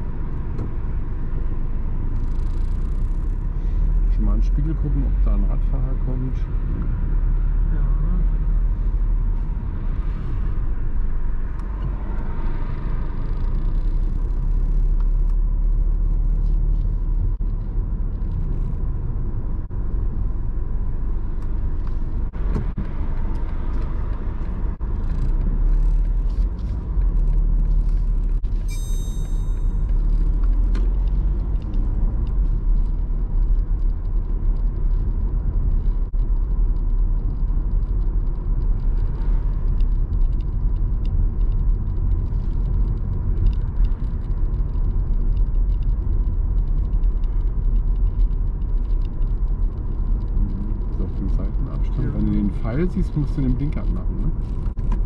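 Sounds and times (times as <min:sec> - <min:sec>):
car engine and tyres rumbling: 0:00.0 - 0:55.0
high ringing tone: 0:28.6 - 0:29.9.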